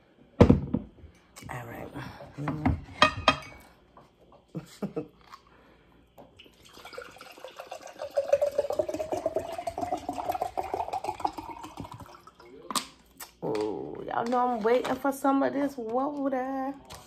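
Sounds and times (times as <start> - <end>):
water pouring into a glass mug: 6.4 - 12.7.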